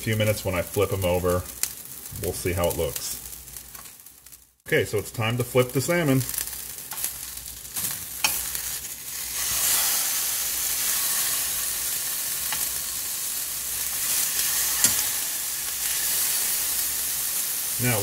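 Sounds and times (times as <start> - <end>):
fish sizzling in a pan: 0.2 - 4.6, 5.6 - 18.0
metal tongs clicking: 14.8 - 15.1.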